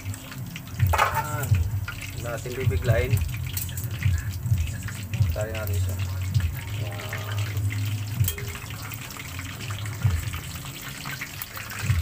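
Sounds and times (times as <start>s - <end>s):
oil sizzling and bubbling: 0.0s - 12.0s
metal tongs knocking on pan: 0.8s - 1.6s, 8.2s - 8.8s.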